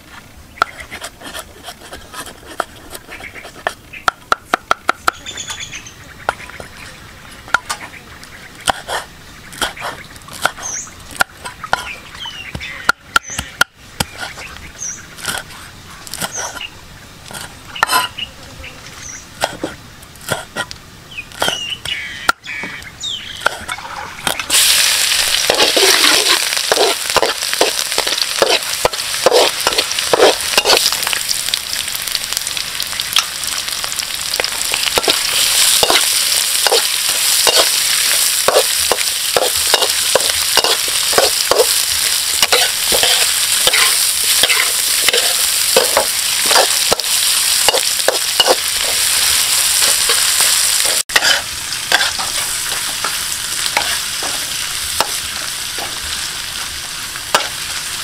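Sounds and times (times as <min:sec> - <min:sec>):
utensil scraping a pan: 0:00.0 - 0:03.8, 0:17.3 - 0:18.2, 0:23.4 - 0:31.2, 0:34.4 - 0:53.2, 0:53.8 - 0:55.2
food sizzling in hot oil: 0:23.7 - 0:58.0.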